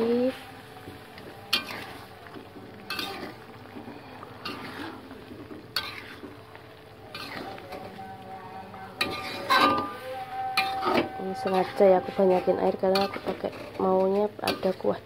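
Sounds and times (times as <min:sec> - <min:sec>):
metal spatula scraping a wok: 0:00.0 - 0:02.1, 0:02.8 - 0:03.5, 0:04.4 - 0:05.0, 0:05.7 - 0:06.4, 0:07.1 - 0:15.0.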